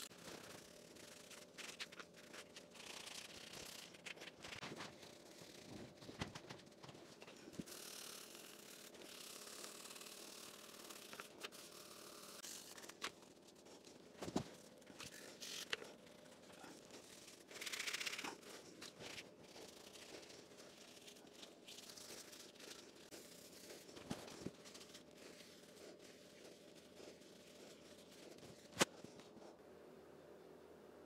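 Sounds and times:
paper towel scrubbing: 8.4s - 29.6s.

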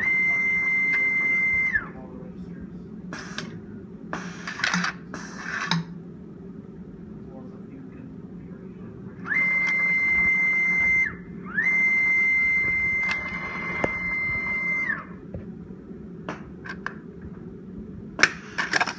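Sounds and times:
motor whine rising in pitch: 0.0s - 2.6s, 9.2s - 18.6s.

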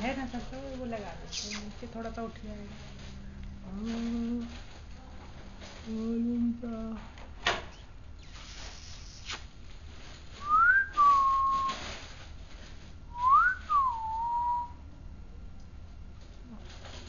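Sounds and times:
rising and falling whistle: 10.4s - 11.8s.

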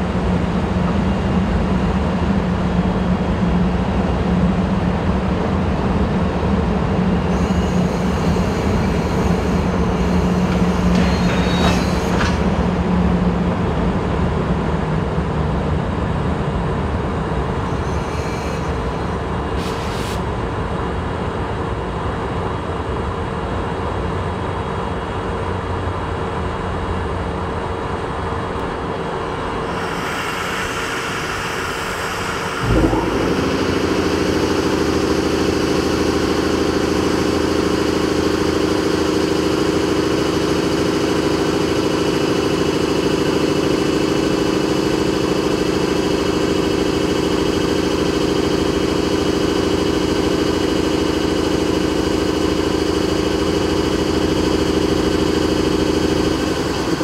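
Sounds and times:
locomotive machinery humming: 0.0s - 21.6s, 25.1s - 57.0s
blower drone: 5.4s - 13.4s, 28.8s - 57.0s.

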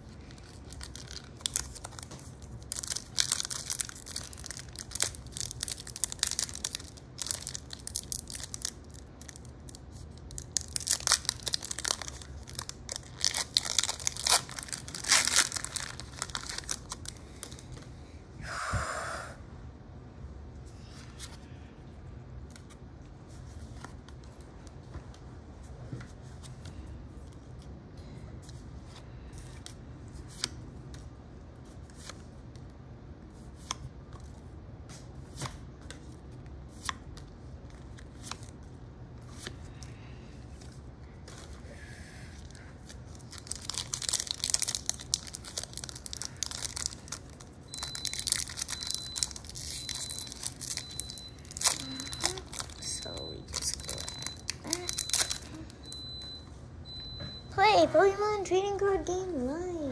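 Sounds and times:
foil wrapper tearing and crinkling: 0.2s - 17.6s, 43.1s - 52.8s, 53.5s - 55.6s.

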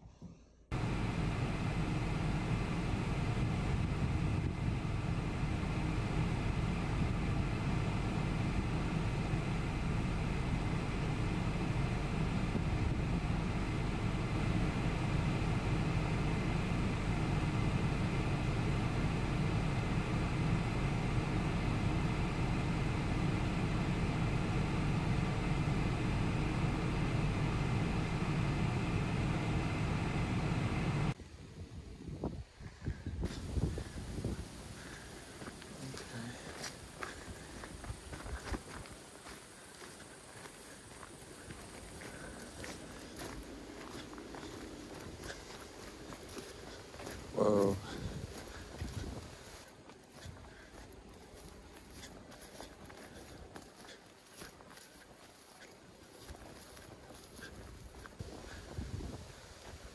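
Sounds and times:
car driving road noise: 0.7s - 31.2s, 33.3s - 59.9s.

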